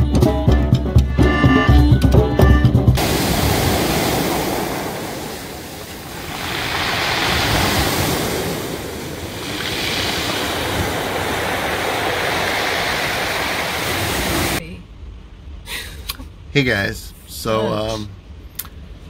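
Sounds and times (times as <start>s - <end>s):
surf washing on pebble beach: 3.0s - 14.6s.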